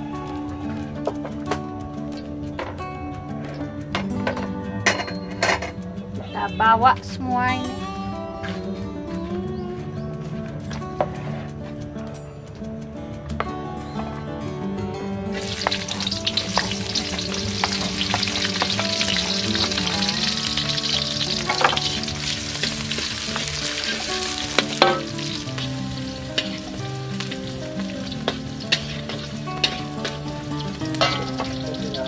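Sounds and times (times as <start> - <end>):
metal spatula scraping wok: 15.3 - 31.7
vegetables sizzling in hot oil: 15.3 - 32.0.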